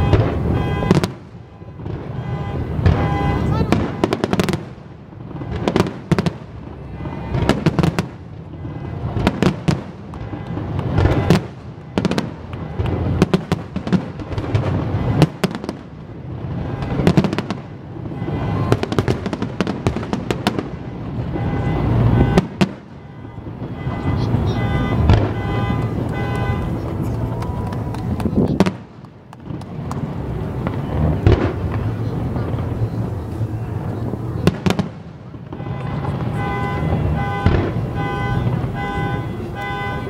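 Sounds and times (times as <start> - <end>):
fireworks bursting: 0.0 - 40.0.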